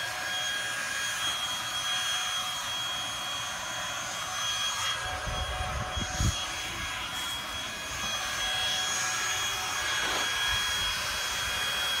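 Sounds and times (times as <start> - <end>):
leaf blower whining: 0.0 - 12.0.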